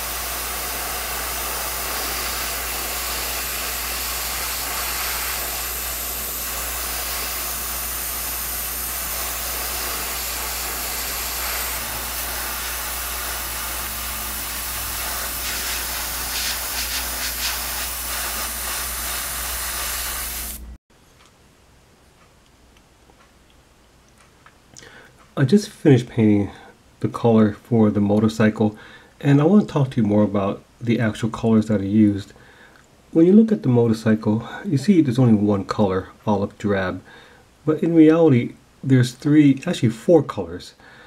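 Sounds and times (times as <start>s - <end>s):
airbrush spraying hiss: 0.0s - 20.8s.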